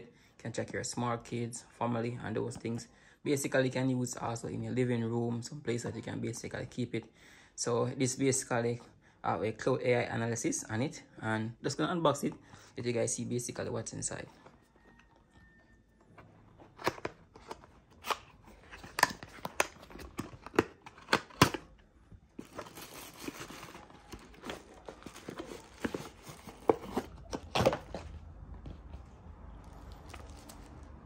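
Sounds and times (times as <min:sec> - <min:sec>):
protective wrap rustling: 0:16.5 - 0:28.3, 0:29.7 - 0:31.0.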